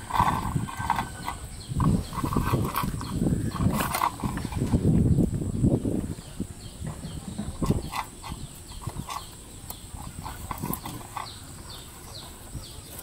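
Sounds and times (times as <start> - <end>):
puppies crunching dry kibble: 7.6 - 13.0.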